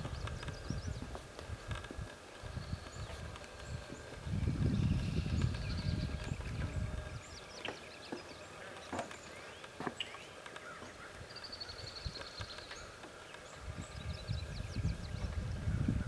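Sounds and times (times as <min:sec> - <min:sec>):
songbirds chipping: 0:00.0 - 0:16.0.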